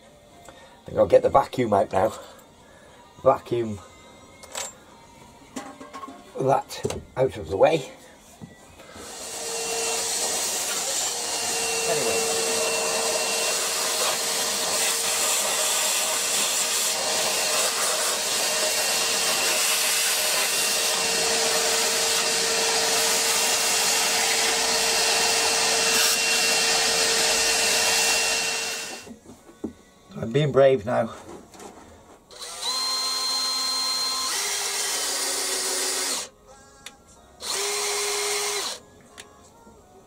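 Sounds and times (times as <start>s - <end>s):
vacuum cleaner whining: 8.8s - 29.1s.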